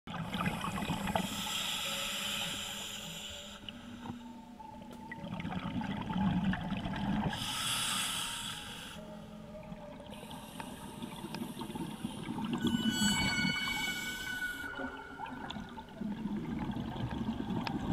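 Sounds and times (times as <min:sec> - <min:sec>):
hissing regulator inhale: 0:00.3 - 0:04.2, 0:07.4 - 0:09.1
exhaled bubbles burbling: 0:14.8 - 0:17.9.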